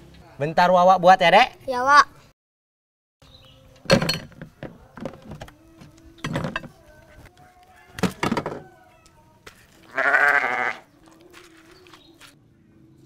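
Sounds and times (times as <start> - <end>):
goat bleating: 9.8 - 10.9.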